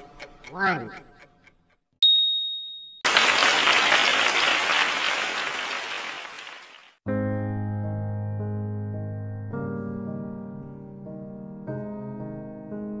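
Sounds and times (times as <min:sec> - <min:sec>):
recorded applause: 0:03.0 - 0:07.0
piano music: 0:07.1 - 0:13.0.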